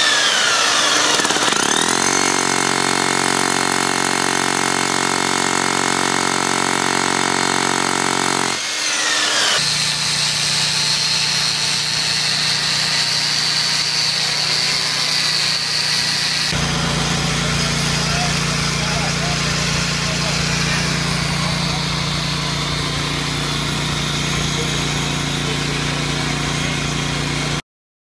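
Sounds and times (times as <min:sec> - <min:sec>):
dust extractor motor hum: 0:00.0 - 0:08.6, 0:16.5 - 0:27.6
grinder whine cutting mortar: 0:00.0 - 0:27.6.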